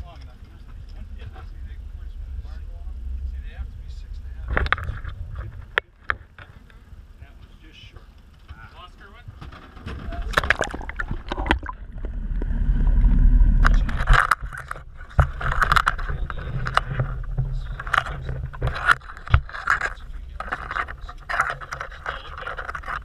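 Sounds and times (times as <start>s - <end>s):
loud low rumble: 0.7s - 5.8s, 10.1s - 18.8s
crabs scraping in wire pot: 9.6s - 23.0s.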